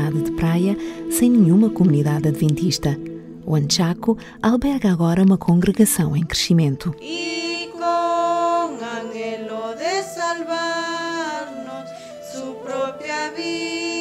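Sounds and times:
women singing a hymn: 7.0s - 14.0s.

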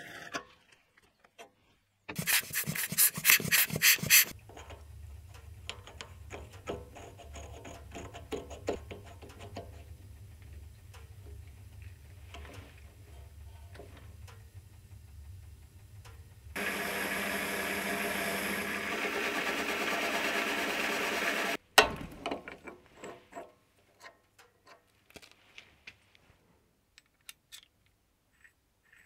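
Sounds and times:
lathe cutting tool hissing: 16.6s - 21.6s
metal parts clicking: 27.0s - 29.0s.

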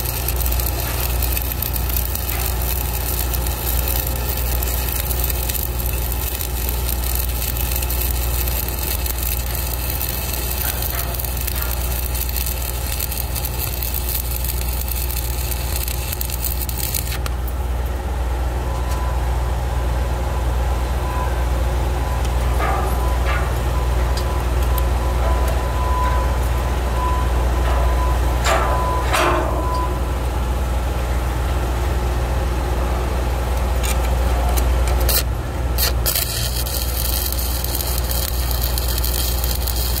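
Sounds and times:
welding arc crackling: 0.0s - 17.7s, 33.6s - 40.0s.

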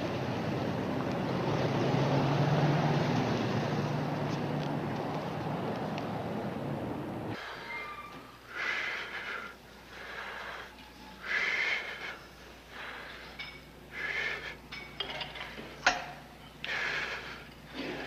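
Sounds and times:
person breathing hard: 8.5s - 14.9s, 16.6s - 18.0s.

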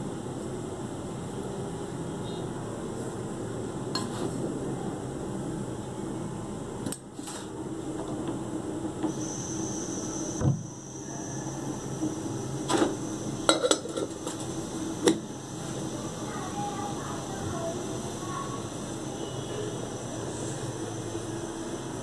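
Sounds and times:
pot of liquid boiling: 2.7s - 22.0s.

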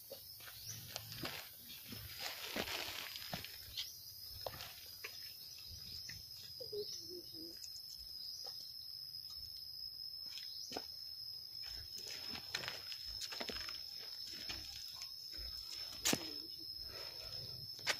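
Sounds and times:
insect drone: 0.0s - 17.9s
footsteps on stone paving: 10.2s - 16.4s.

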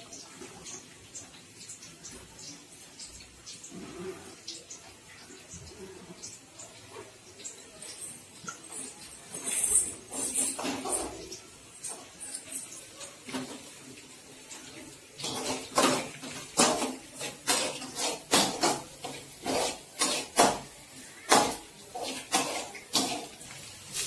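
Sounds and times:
metal spoon scraping a steel pan: 7.9s - 13.6s, 15.2s - 20.7s, 21.3s - 23.4s.

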